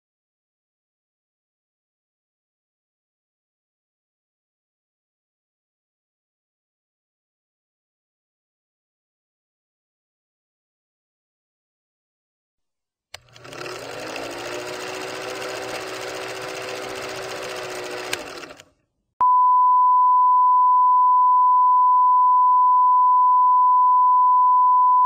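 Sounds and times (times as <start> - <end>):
film projector rattling whir: 13.2 - 18.7.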